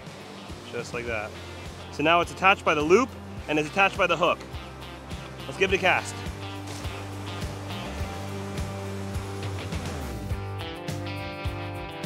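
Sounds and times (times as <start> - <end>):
guitar-led music with steady beat: 0.0 - 12.0.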